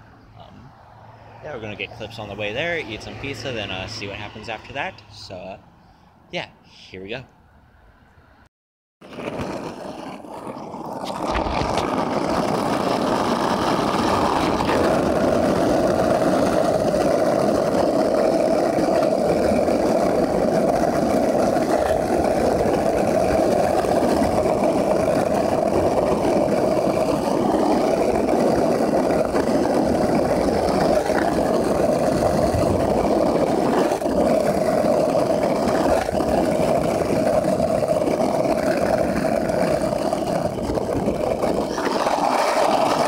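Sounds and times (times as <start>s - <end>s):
skateboard wheels on asphalt: 0.0s - 5.7s, 9.0s - 43.0s.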